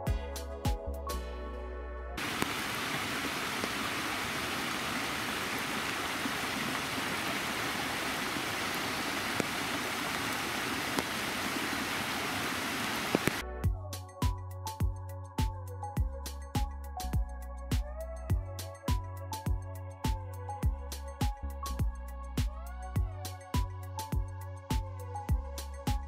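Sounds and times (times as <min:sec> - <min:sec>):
background music: 0:00.0 - 0:02.2, 0:13.4 - 0:26.0
creek water rushing over rocks: 0:02.2 - 0:13.4
faint water splashes: 0:02.2 - 0:13.4.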